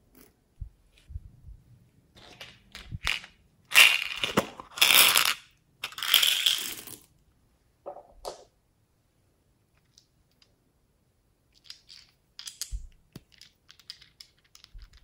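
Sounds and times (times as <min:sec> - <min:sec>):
plastic beads rattling: 0:02.2 - 0:07.0, 0:11.6 - 0:15.0.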